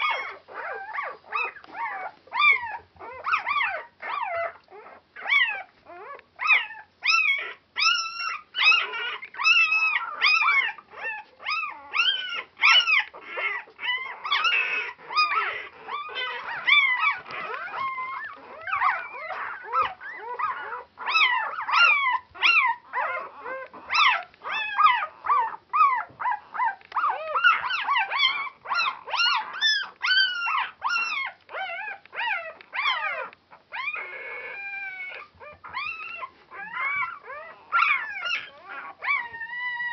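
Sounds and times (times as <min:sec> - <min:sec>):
puppies crying: 0:00.0 - 0:39.9.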